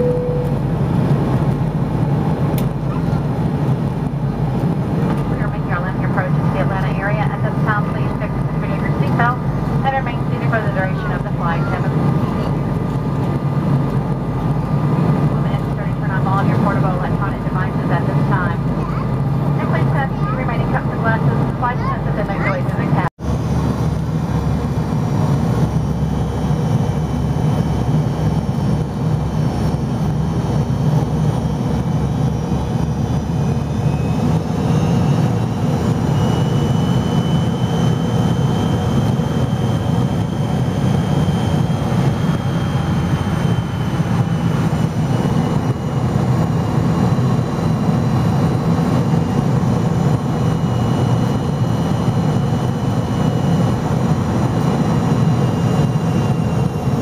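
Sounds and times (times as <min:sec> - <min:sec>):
faint high whine: 0:00.0 - 0:00.7
jet engines rumbling: 0:00.0 - 0:57.0.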